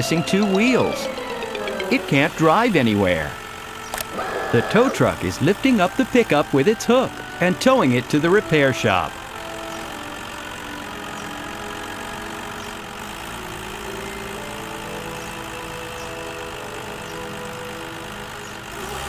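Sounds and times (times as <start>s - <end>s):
cartoon engine sound effect: 0.0s - 5.7s.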